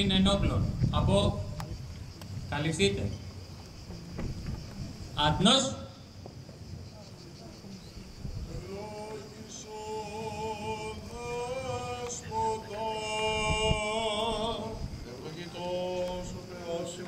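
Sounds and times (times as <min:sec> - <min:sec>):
man chanting a prayer: 0:08.5 - 0:17.0.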